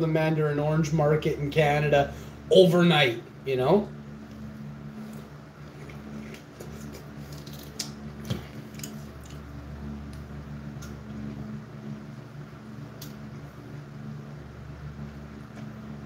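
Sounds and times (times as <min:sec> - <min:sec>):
steady low hum: 0:00.0 - 0:16.0
orange peel tearing: 0:05.0 - 0:09.5.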